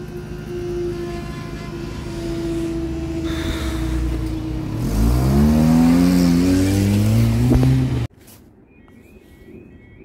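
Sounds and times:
car engine revving: 4.6 - 8.1.

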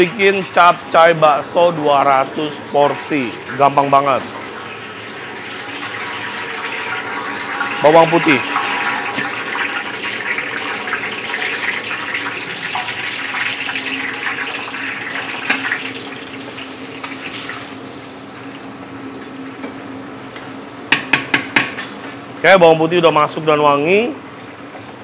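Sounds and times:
garlic sizzling in hot oil: 3.4 - 19.8.

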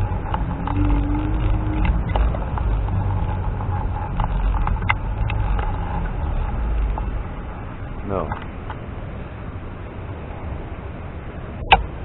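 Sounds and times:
small clicks and rattles: 0.0 - 7.2
scooter running: 0.0 - 8.8
faint steady whine: 0.0 - 12.0
wind noise on microphone: 0.0 - 12.0.

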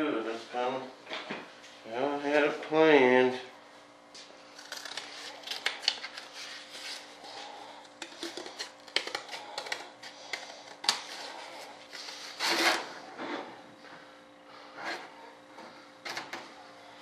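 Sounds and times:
scraping on workbench: 12.4 - 13.6.

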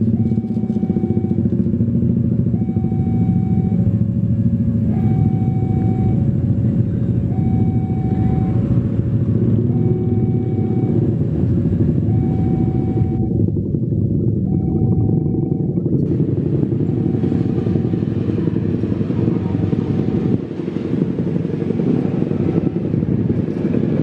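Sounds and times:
two-note warning signal: 0.0 - 11.3, 12.0 - 13.4, 14.4 - 15.8.

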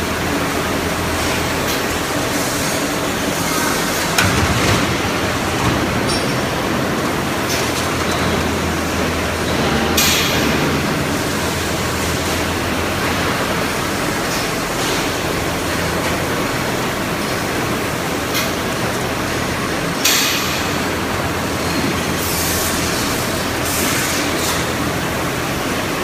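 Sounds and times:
welding machine din: 8.0 - 13.2.

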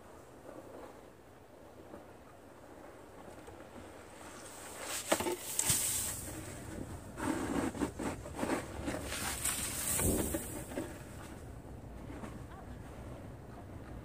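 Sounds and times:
snow sliding off roof: 3.8 - 13.4
snow shovel scraping: 4.3 - 11.4.

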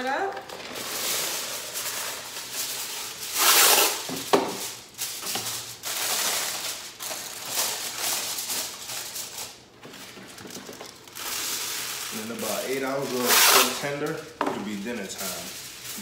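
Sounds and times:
aluminium foil crinkling: 0.1 - 16.0
foil tearing snap: 3.3 - 4.1.

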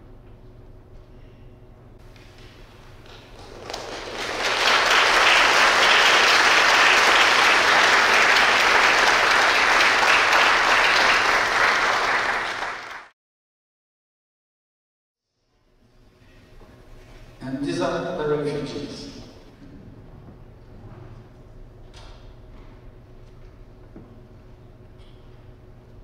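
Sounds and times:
audience applauding: 3.0 - 13.1.

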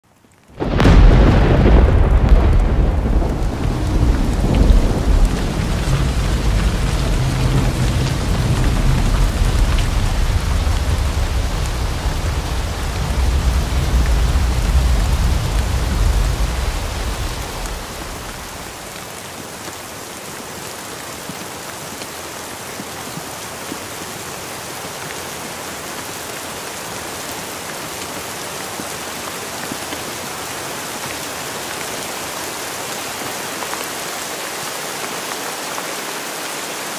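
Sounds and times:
heavy rain pouring: 0.1 - 36.9
rolling thunder: 0.6 - 18.9.

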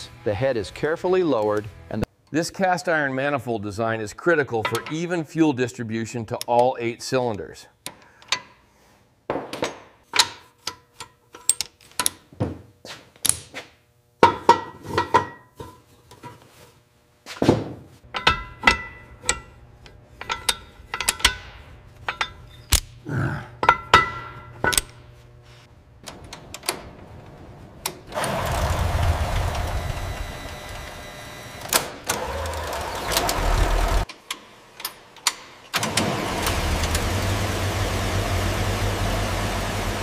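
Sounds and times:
tools clanking on metal: 4.6 - 5.1, 18.1 - 23.0, 23.6 - 25.0
steady rushing noise: 25.7 - 30.5.

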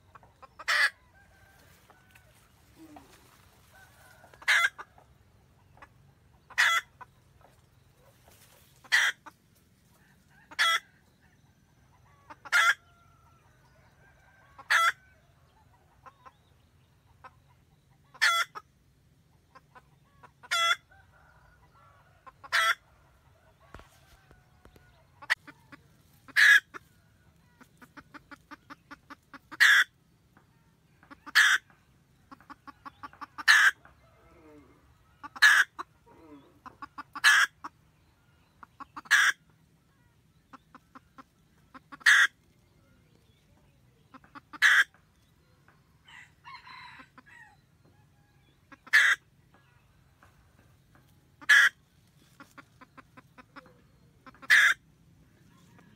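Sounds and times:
hen cackling: 0.0 - 5.1, 5.7 - 7.2, 8.1 - 9.4, 10.2 - 10.9, 12.0 - 12.9, 14.5 - 15.0, 18.0 - 18.7, 19.5 - 21.2, 22.2 - 22.9, 25.2 - 30.0, 31.0 - 31.7, 32.3 - 37.9, 38.6 - 42.5, 44.0 - 45.0, 48.6 - 49.3, 51.4 - 55.9
soft clucks: 0.0 - 46.0, 46.7 - 55.9.

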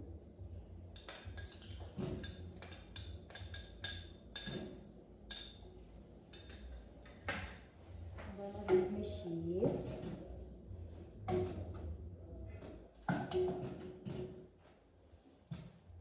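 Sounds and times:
metal spoon clinking on glass and pan: 1.0 - 5.7, 6.3 - 7.6.

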